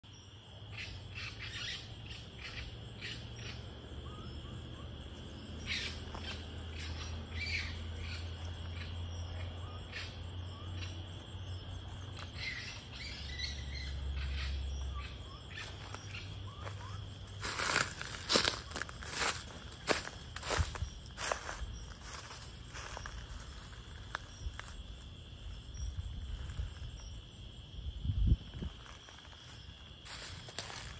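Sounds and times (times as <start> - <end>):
high insect drone: 0.0 - 30.9
faint chirps and crackles: 5.5 - 27.3
footsteps in dry leaves: 15.5 - 24.9, 28.6 - 30.9.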